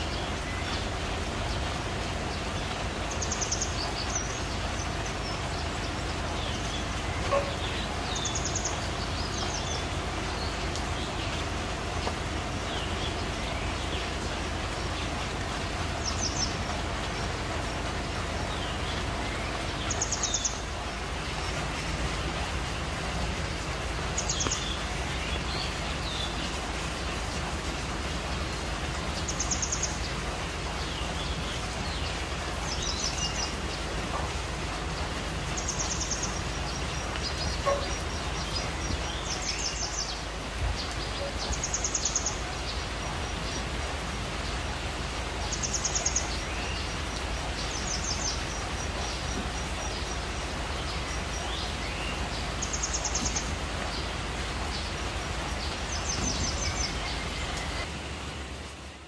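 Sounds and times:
faint bird calls: 0:06.6 - 0:09.9, 0:37.2 - 0:39.8.

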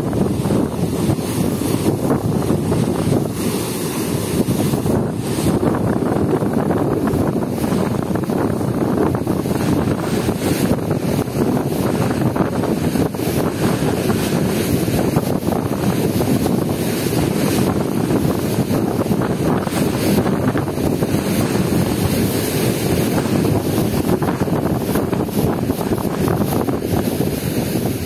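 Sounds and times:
river rushing over white water: 0:00.0 - 0:28.0.

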